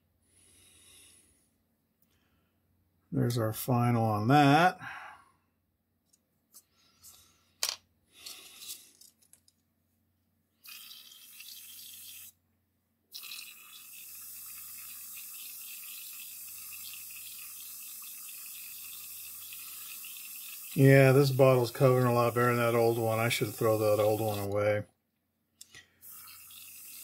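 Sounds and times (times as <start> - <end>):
small parts clicking and knocking: 7.6 - 9.7
airbrush spraying hiss: 13.9 - 24.6, 26.0 - 27.0.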